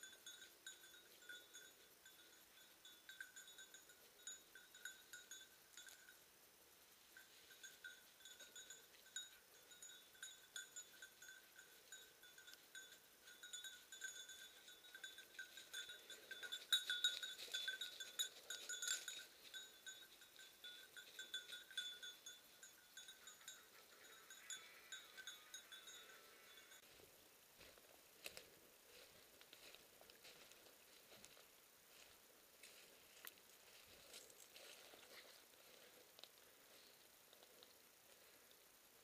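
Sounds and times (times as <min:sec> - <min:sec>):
dog collar bell jingling: 0:00.0 - 0:06.2, 0:07.2 - 0:26.8
rustling through undergrowth: 0:26.8 - 0:38.5.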